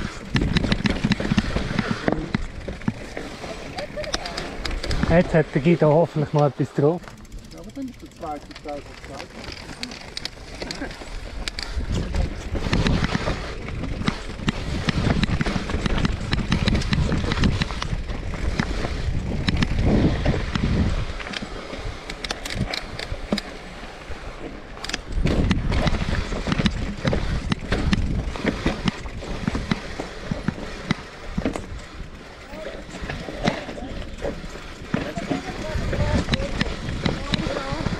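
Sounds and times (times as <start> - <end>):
bike tyres crunching on dirt: 0.0 - 37.9
chain and frame rattling: 7.0 - 14.4, 30.2 - 37.9.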